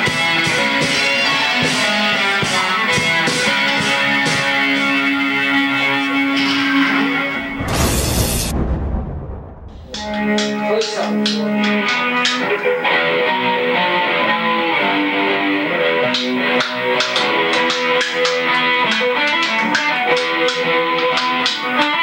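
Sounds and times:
drums with cymbal strikes: 0.0 - 7.0
electric guitar melody: 0.0 - 7.6, 9.9 - 22.0.

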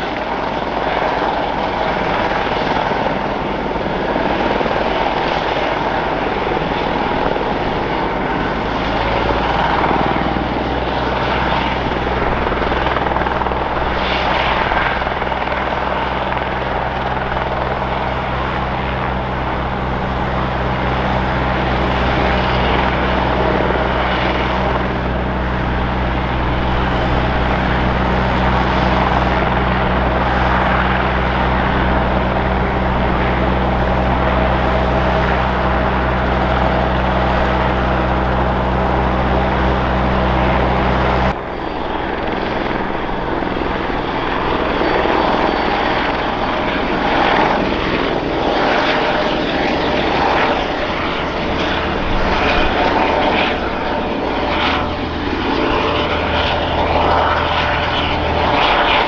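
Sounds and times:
helicopter rotor thrum: 0.0 - 59.0
helicopter rushing noise: 0.0 - 59.0.

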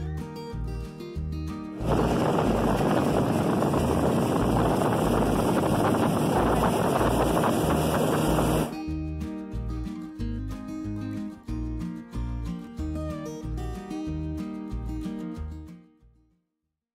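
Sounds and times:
outboard motor roaring: 1.8 - 8.8
wind on microphone: 1.8 - 8.8.

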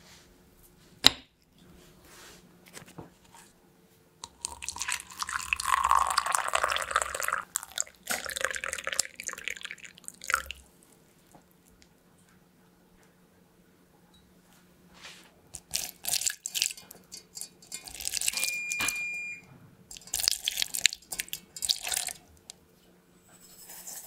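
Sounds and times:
water pouring into mug: 4.2 - 10.6.

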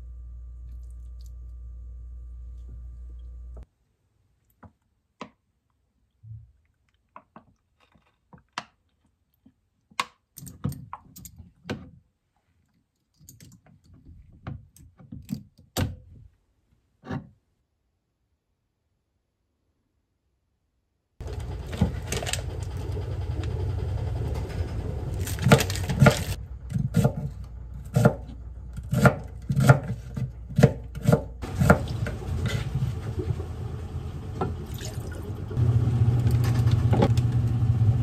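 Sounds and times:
steady hum: 0.0 - 3.6.

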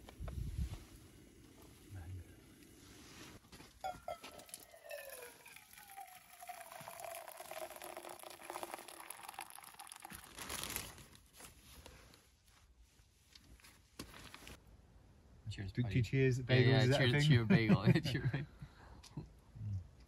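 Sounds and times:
water pouring into metal mug: 4.1 - 10.4.

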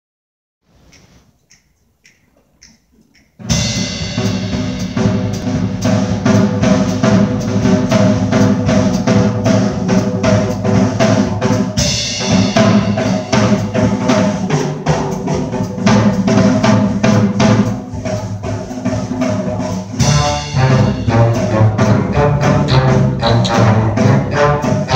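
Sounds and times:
big-band jazz: 0.7 - 24.9
drum kit beat: 0.7 - 24.9
faint clicks: 0.8 - 3.5.

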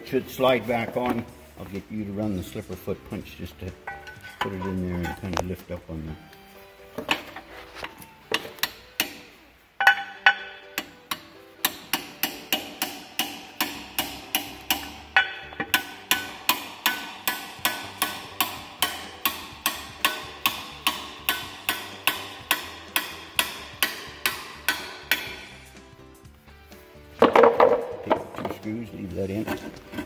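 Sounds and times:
hammer tapping on metal: 8.4 - 25.6.

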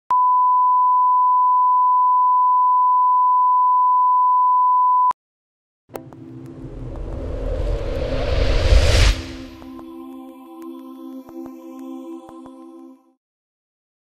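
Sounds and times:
steady test tone beep: 0.1 - 5.2
low rumble: 6.0 - 9.8.

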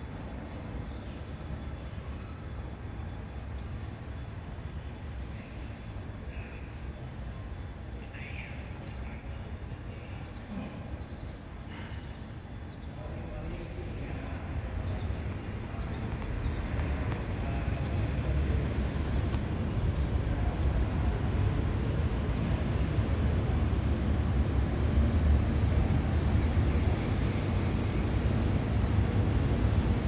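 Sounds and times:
low outdoor rumble: 13.0 - 30.0.

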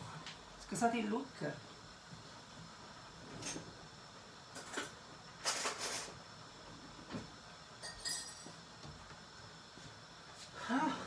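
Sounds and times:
kitchen knocks and clinks: 7.8 - 8.6.

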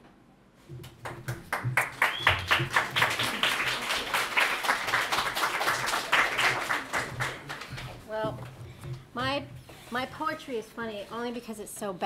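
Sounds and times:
audience applauding: 0.8 - 8.0.

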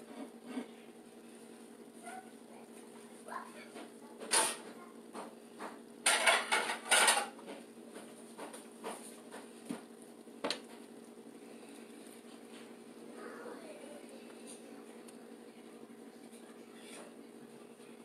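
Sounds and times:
dishes clanking: 3.8 - 4.8, 5.6 - 7.6.

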